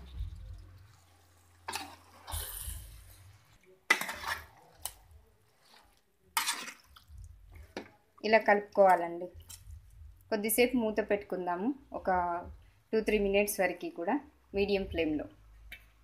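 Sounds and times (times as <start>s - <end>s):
metal spoon scraping pot: 0.1s - 7.1s.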